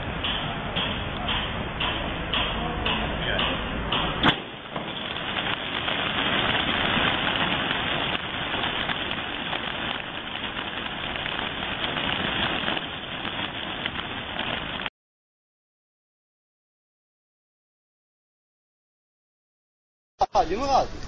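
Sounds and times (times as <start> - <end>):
pigeons flapping wings: 4.3 - 14.9.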